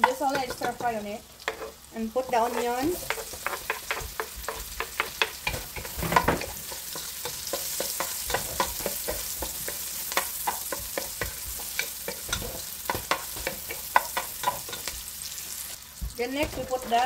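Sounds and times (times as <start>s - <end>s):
onions sizzling in a pan: 0.0s - 17.0s
wooden spoon scraping a pan: 0.0s - 17.0s.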